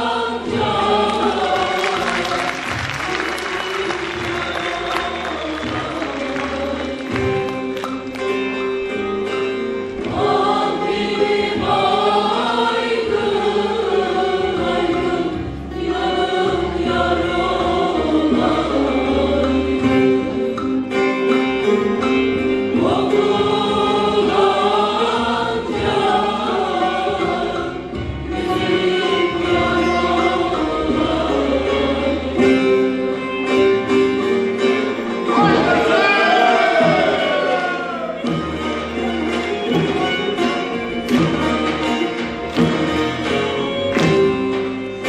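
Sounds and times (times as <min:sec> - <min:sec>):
instrumental accompaniment: 0:00.0 - 0:45.0
mixed choir singing folk song: 0:00.0 - 0:45.0.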